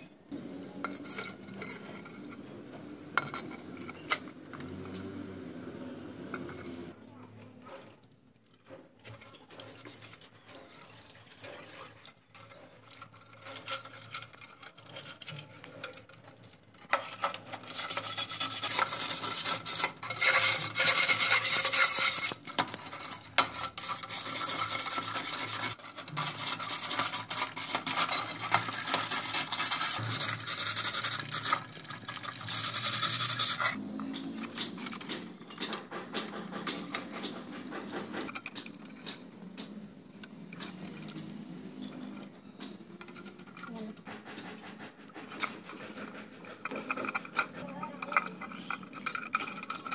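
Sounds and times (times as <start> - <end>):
hand tool scraping rusted metal: 0.8 - 5.1, 8.7 - 39.6, 40.2 - 49.9
metal parts clinking: 46.6 - 49.9.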